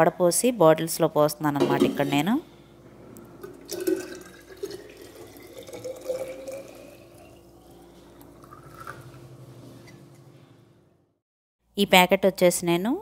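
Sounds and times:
water pouring into metal bottle: 3.4 - 9.2.

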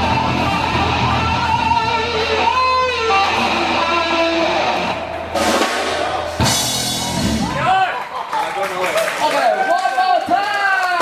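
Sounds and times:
electric guitar strummed chords: 0.0 - 7.6
live rock band playing: 0.0 - 7.8.

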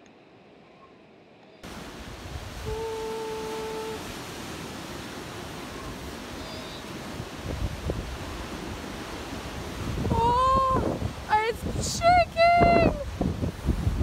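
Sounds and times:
faint hiss: 1.4 - 11.4
sea surf: 1.6 - 14.0
wind noise on microphone: 5.8 - 14.0.

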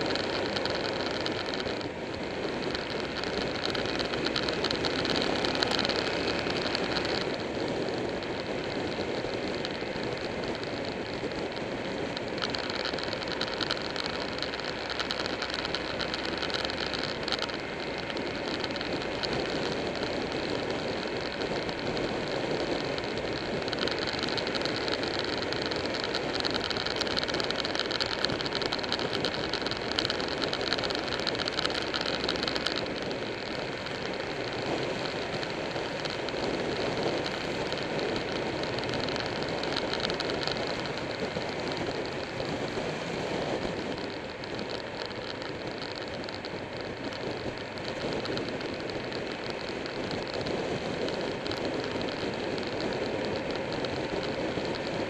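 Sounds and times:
motorcycle engine running: 0.0 - 55.0
wind and road rush: 0.0 - 55.0.

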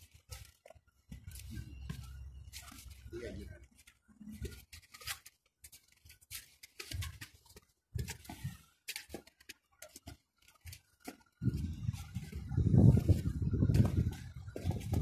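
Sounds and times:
footsteps crunching through snow: 11.0 - 15.0.

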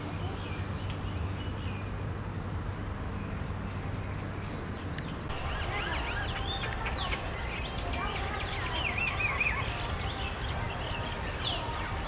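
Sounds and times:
steady low rumble: 0.0 - 12.0
faint bird chirps: 4.1 - 11.8.

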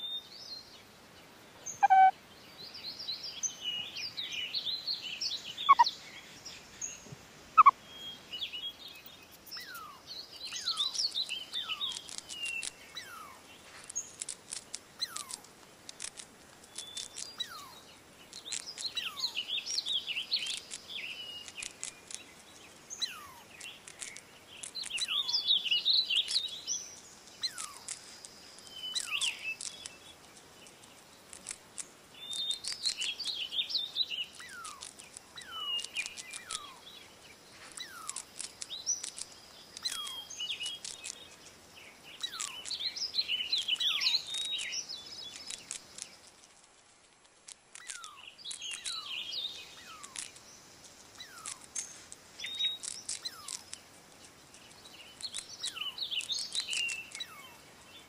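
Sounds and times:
high twittering: 1.7 - 2.1, 5.7 - 5.9, 7.6 - 7.8
sharp loud chirps: 1.7 - 2.1, 5.7 - 5.9, 7.6 - 7.8
short falling whistle: 1.8 - 2.1.

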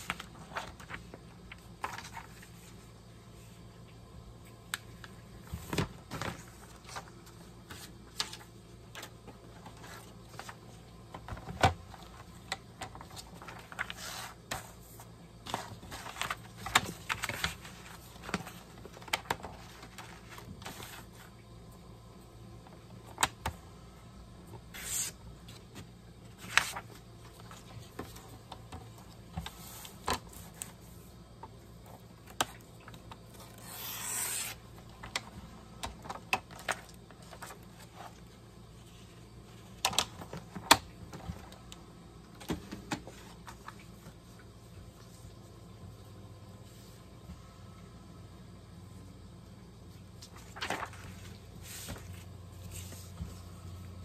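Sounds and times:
paper rustling: 0.0 - 2.8, 11.3 - 21.4, 24.7 - 28.4, 50.2 - 53.4
paper sliding: 24.7 - 25.2, 33.5 - 34.6.

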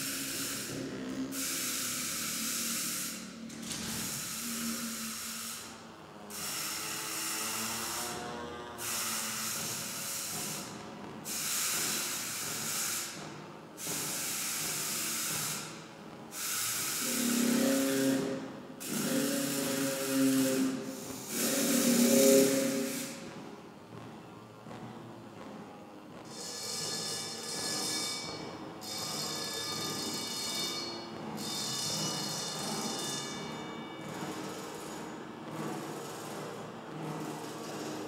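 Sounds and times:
low humming tones: 0.0 - 7.5, 17.0 - 26.2
hissing electronic noise: 16.8 - 18.2, 18.9 - 23.2.

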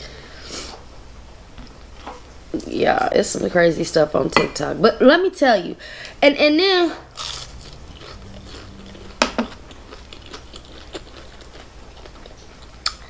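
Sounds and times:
person chewing crunchy food: 7.1 - 13.0.

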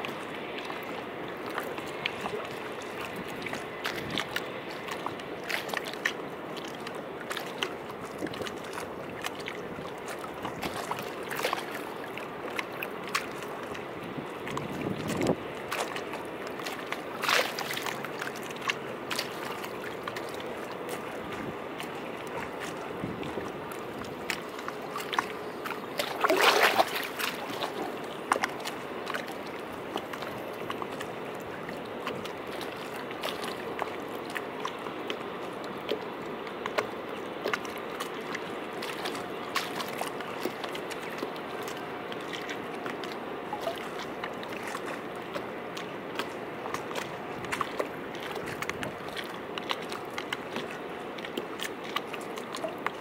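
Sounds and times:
water drips and splashes: 0.0 - 53.0
waves lapping against steps: 0.0 - 53.0.

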